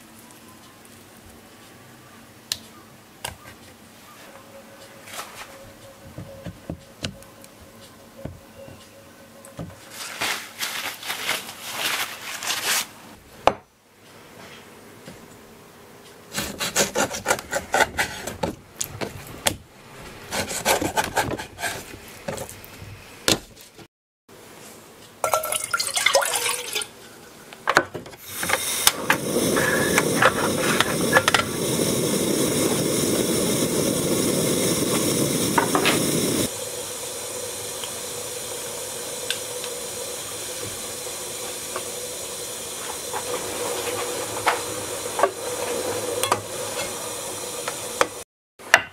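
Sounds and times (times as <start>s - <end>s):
steady hiss of heating pot: 24.4s - 48.2s.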